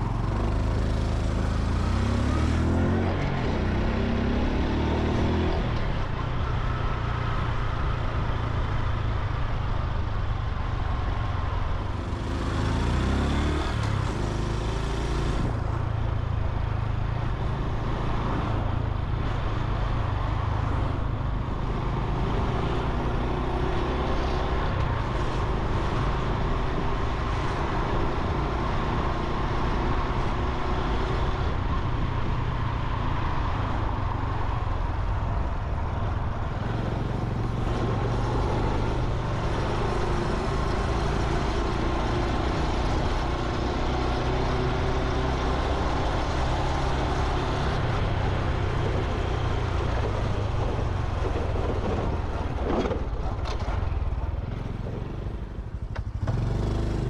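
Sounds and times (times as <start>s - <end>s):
road noise: 0.0s - 57.0s
motorcycle engine running: 53.2s - 57.0s.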